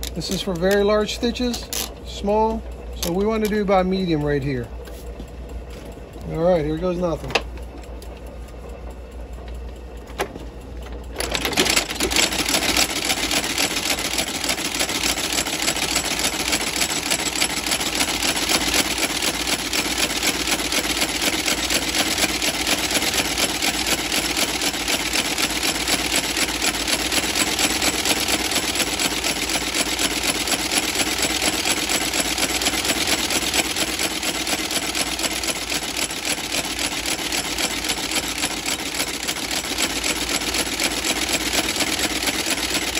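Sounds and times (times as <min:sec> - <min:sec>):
stitching machine running: 0:10.8 - 0:42.9.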